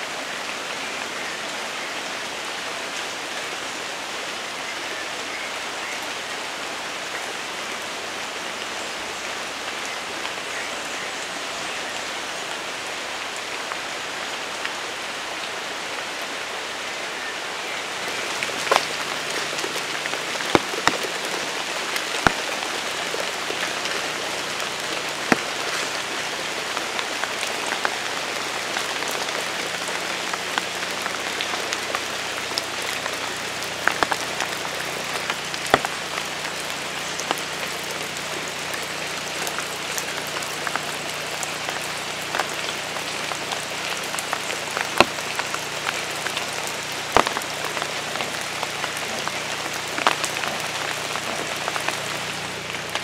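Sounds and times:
rain falling: 0.0s - 53.0s
close raindrop hits: 17.8s - 53.0s.

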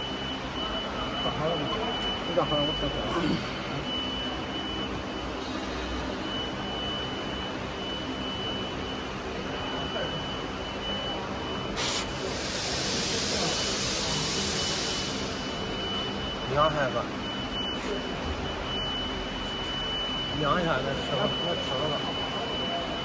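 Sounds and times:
workshop machinery hum: 0.0s - 23.0s
hiss: 11.8s - 15.3s.

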